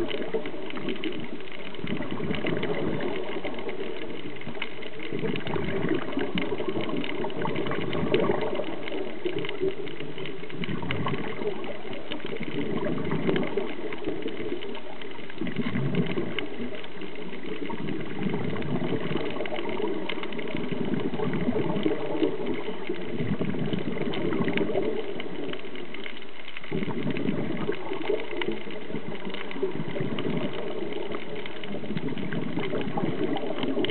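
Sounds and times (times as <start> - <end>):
muffled underwater water rushing: 0.0 - 33.9.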